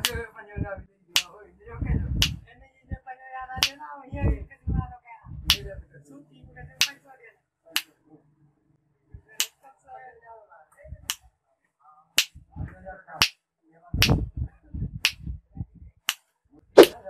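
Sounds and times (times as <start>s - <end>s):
finger snaps: 5.5s - 5.7s, 14.0s - 14.2s, 15.0s - 15.2s.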